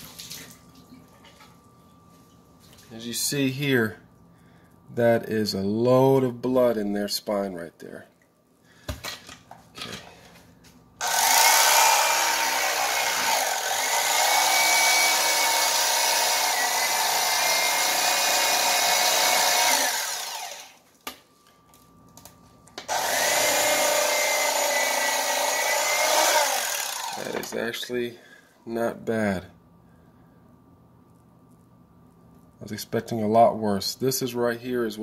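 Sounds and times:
electric knife motor whine: 11.0 - 20.8, 22.9 - 27.6.

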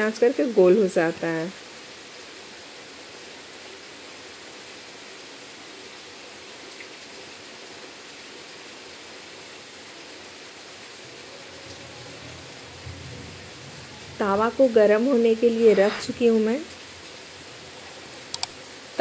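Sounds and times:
steady hiss: 10.0 - 19.0
faint click: 18.3 - 18.6.

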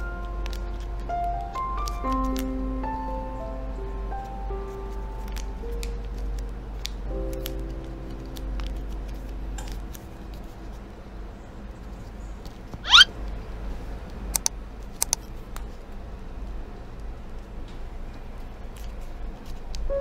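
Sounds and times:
paper squeak: 12.8 - 13.1.

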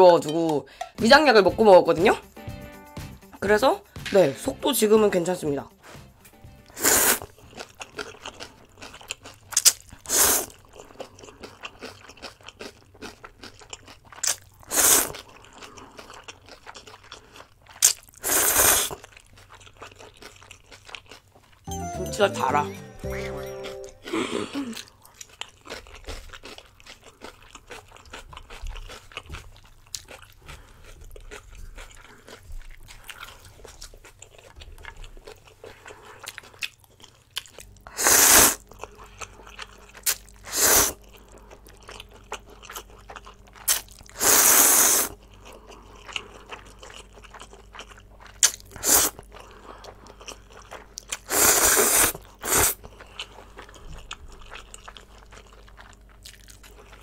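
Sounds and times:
loud slurps of noodles: 6.8 - 7.3, 10.1 - 10.5, 14.7 - 15.2, 18.2 - 19.0, 38.0 - 38.6, 40.4 - 41.0, 44.2 - 45.1, 48.8 - 49.2, 51.3 - 52.8
quiet chewing: 24.1 - 38.0, 45.1 - 51.3, 52.2 - 57.0.

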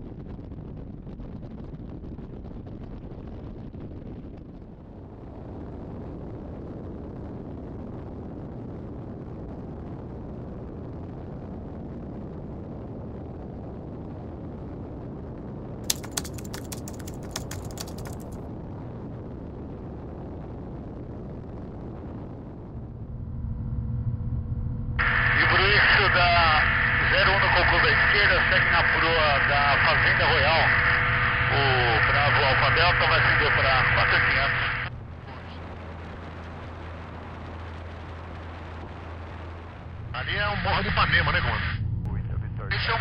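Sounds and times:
propeller aircraft engine: 15.9 - 18.4, 22.9 - 43.0
short patter of clicks: 15.9 - 18.4.

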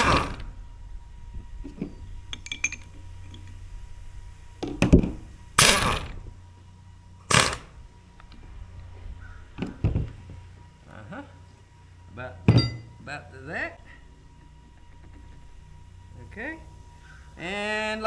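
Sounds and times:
heavy thumps of handling: 8.2 - 10.4
impact wrench hammering: 12.5 - 12.9.

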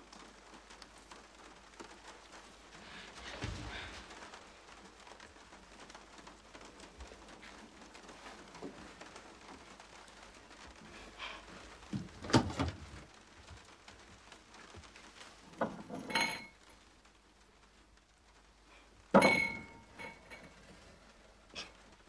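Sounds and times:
ringing clink: 19.2 - 20.3.

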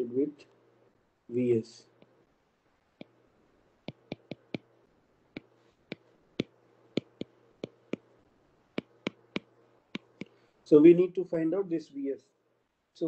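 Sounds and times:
stylus tapping on glass screen: 3.8 - 4.7, 5.4 - 8.1, 8.8 - 10.4.

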